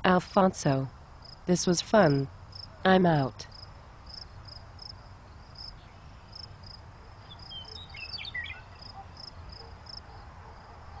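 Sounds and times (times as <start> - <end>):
insects chirping: 1.0 - 1.5, 2.3 - 2.8, 3.5 - 11.0
gliding bird-like chirps: 5.6 - 10.2.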